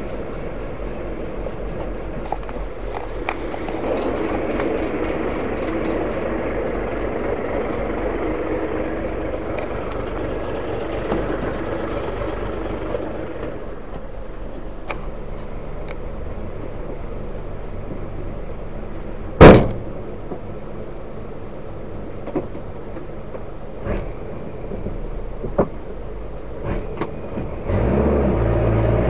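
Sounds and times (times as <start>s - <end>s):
truck diesel engine running: 0.0s - 29.0s.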